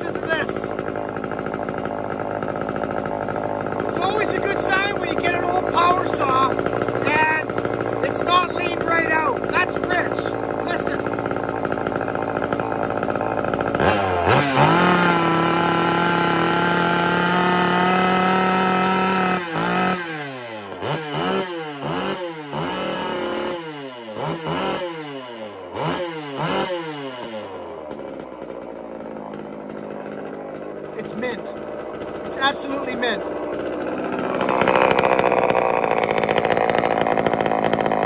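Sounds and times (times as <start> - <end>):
chainsaw revving: 0.0 - 38.0.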